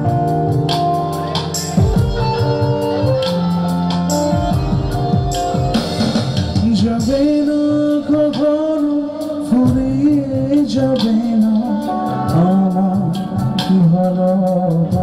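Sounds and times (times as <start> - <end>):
band playing: 0.0 - 15.0
drum beats: 0.0 - 15.0
man singing: 6.4 - 15.0.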